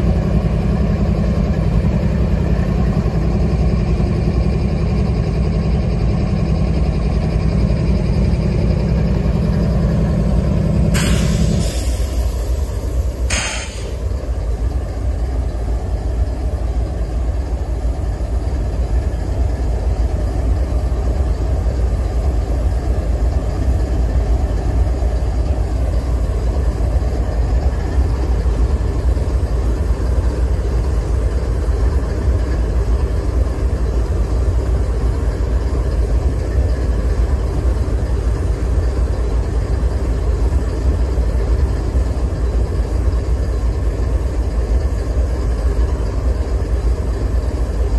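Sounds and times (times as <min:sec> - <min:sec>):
locomotive engine idling: 0:00.0 - 0:47.9
short hiss burst: 0:10.9 - 0:14.1.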